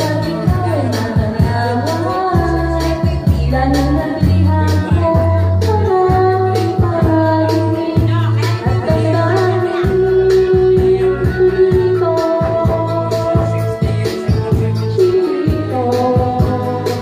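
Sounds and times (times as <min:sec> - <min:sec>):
bass line: 0:00.0 - 0:17.0
woman singing: 0:00.0 - 0:17.0.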